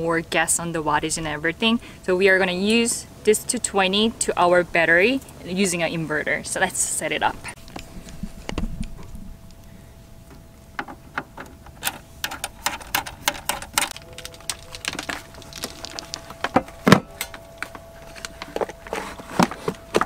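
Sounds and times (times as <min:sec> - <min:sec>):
faint steady tone: 0:00.0 - 0:20.0
power cable plug clicks and rattles: 0:10.8 - 0:18.4.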